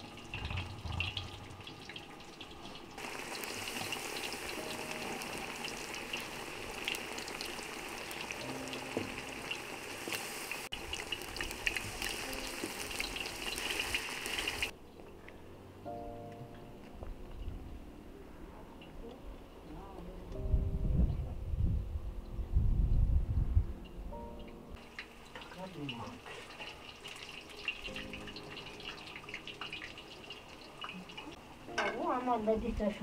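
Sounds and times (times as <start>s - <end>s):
food sizzling in hot oil: 0.0s - 14.7s, 24.8s - 32.0s.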